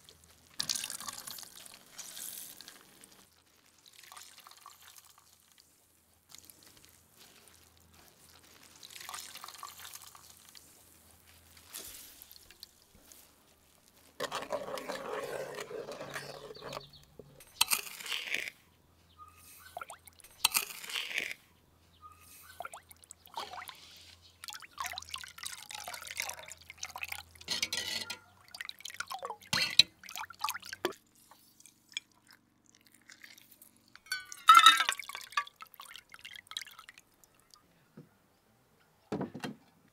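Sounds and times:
metal ladle stirring liquid: 14.2s - 18.3s, 25.4s - 31.0s
liquid dripping into a clay bowl: 24.4s - 27.5s, 28.1s - 31.0s, 31.6s - 37.6s.

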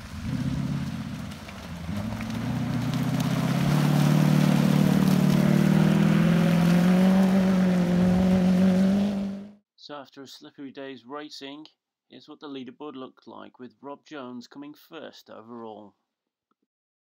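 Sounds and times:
wheels spinning in mud: 0.0s - 9.4s
off-road car engine running hard: 0.0s - 9.5s.

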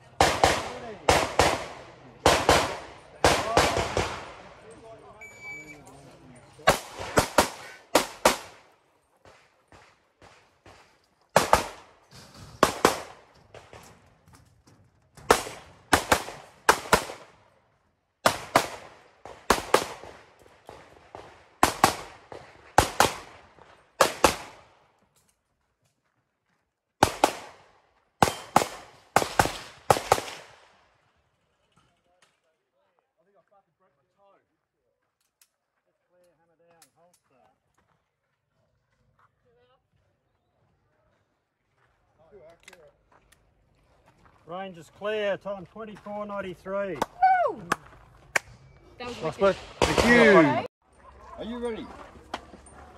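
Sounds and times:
pistol shots: 0.2s - 4.5s, 6.7s - 12.0s, 12.6s - 13.8s, 15.3s - 17.3s, 18.2s - 24.7s, 27.0s - 30.6s, 49.6s - 50.6s.

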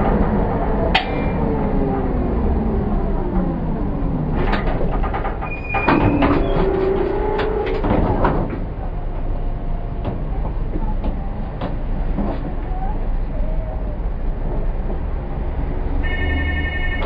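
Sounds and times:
clunks and knocks: 0.0s - 12.7s
tram motor whine: 0.0s - 17.0s.

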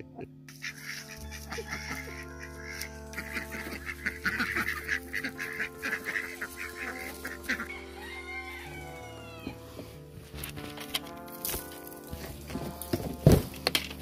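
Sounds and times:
music with slow sustained chords: 0.0s - 14.0s
rapid poultry calls: 0.5s - 9.9s.

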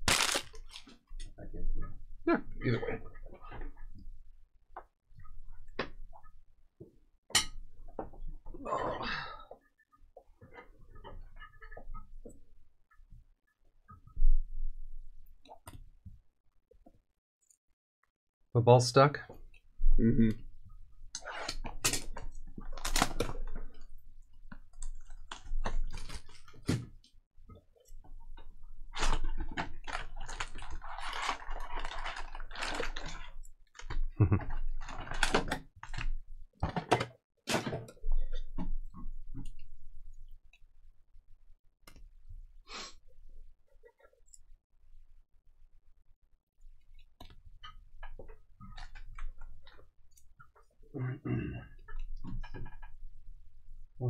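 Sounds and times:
crinkling and scraping of foil packs: 0.0s - 1.0s, 21.5s - 23.5s, 25.0s - 26.7s, 28.9s - 34.0s, 34.7s - 36.0s.

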